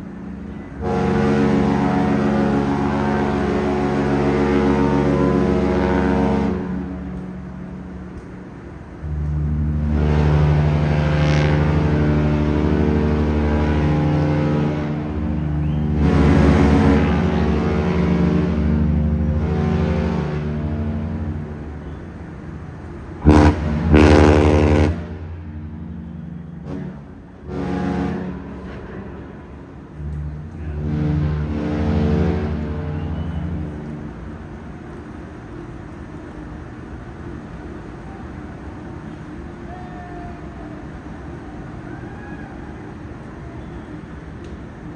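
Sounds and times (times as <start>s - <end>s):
deep ship horn blast: 0.0s - 35.2s
low harbour rumble: 0.0s - 44.9s.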